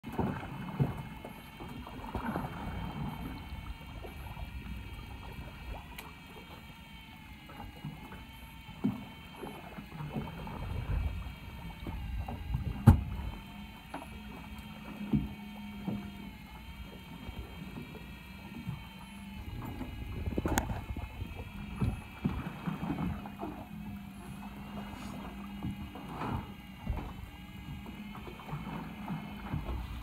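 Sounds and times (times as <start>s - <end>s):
boat engine hum and rumble: 0.0s - 30.0s
sharp knocks against boat: 11.8s - 14.1s, 14.8s - 16.2s.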